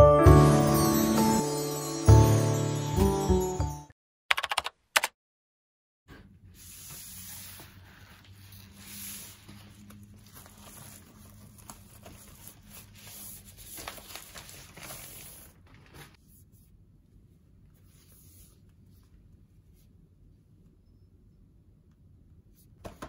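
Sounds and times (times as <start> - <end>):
envelope sliding out: 7.0 - 16.2
bubble mailer crinkling: 9.7 - 16.2.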